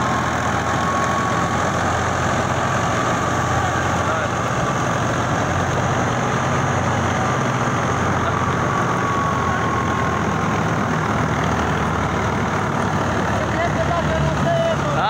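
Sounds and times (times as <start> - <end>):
threshing machine diesel engine drone: 0.0 - 15.0.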